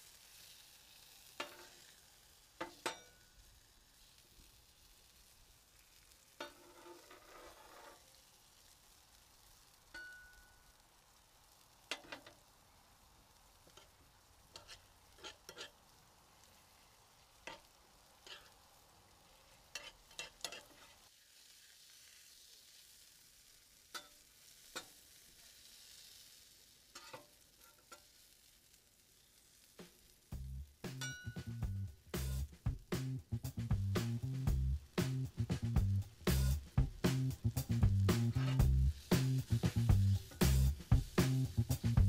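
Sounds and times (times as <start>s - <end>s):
hot dogs sizzling on a griddle: 0.0s - 42.0s
metal spatula scraping griddle: 0.3s - 2.0s, 6.0s - 8.2s, 11.9s - 12.4s, 13.6s - 16.6s, 17.2s - 21.5s, 26.9s - 28.3s, 38.1s - 40.8s
spoon clicking in skillet: 2.6s - 3.3s, 9.9s - 10.8s, 11.9s - 12.4s, 17.4s - 18.6s, 23.9s - 25.0s.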